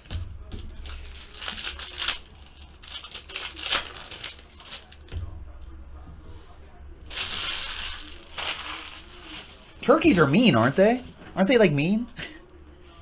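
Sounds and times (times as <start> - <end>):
wrapper tearing and crinkling: 0.7 - 5.1, 7.1 - 10.8.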